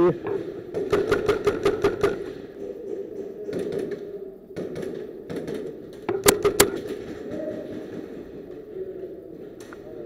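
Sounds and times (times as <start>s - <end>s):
airsoft gun shots: 0.8s - 2.4s, 6.1s - 6.9s
background murmur: 2.1s - 10.0s.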